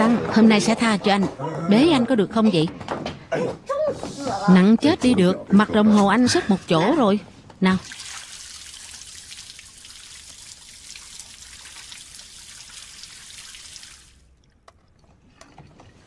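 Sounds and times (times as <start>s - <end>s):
tap water splashing into sink: 7.8s - 14.8s.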